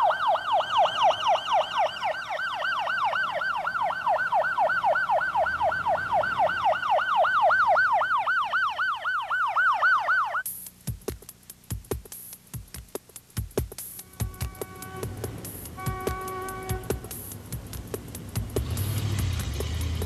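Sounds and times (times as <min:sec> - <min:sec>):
ambulance siren yelping: 0:00.0 - 0:10.4.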